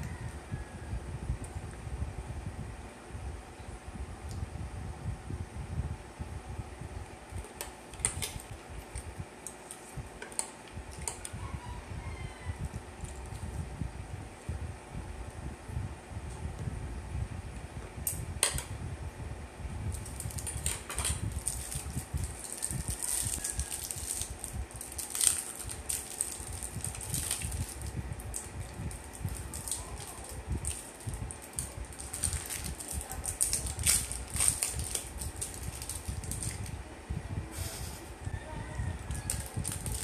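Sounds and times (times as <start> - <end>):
plastic wrappers crinkling: 19.9 - 36.7, 39.3 - 40.0.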